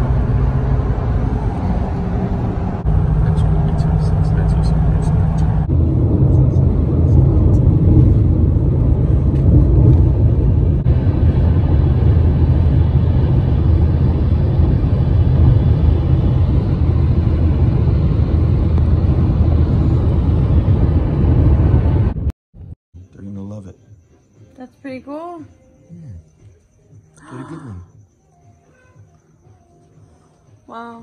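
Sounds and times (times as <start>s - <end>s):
car road rumble from inside: 0.0s - 22.7s.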